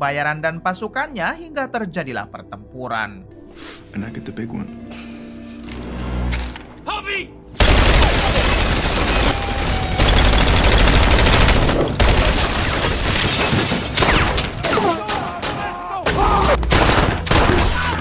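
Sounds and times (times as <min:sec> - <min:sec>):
heavy gunfire volleys: 0:07.6 - 0:13.3.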